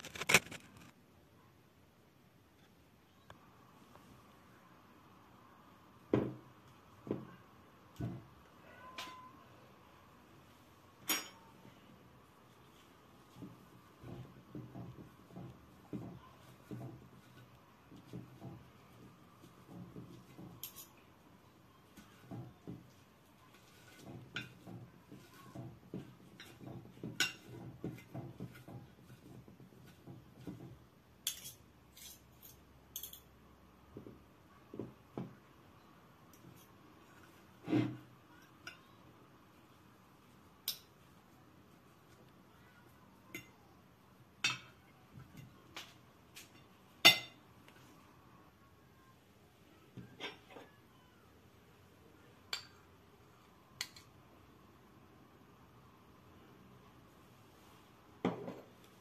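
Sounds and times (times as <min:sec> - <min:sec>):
cutlery clinking on dishes: 0:08.8 - 0:09.3, 0:11.0 - 0:11.5, 0:20.3 - 0:21.0, 0:23.7 - 0:29.4, 0:30.5 - 0:33.3, 0:44.4 - 0:44.8, 0:45.4 - 0:47.4
fork mashing potatoes: 0:12.6 - 0:33.2
fork tines clinking on plate: 0:31.3 - 0:33.3.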